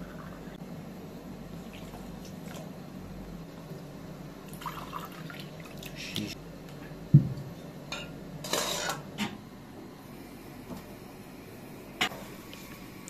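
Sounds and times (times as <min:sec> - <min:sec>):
dishes and pots clinking: 0:07.9 - 0:09.4.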